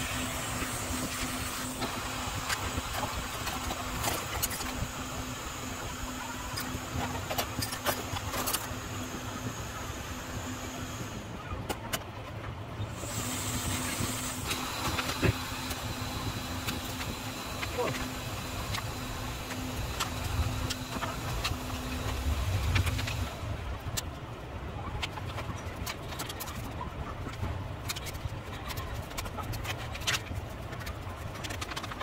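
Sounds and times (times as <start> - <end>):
hot air blower hissing: 0.0 - 11.4, 12.9 - 23.6
low fan hum: 0.0 - 32.0.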